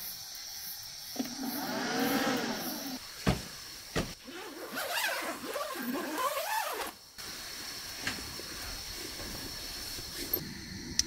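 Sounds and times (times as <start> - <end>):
zipper rasping: 4.3 - 6.9.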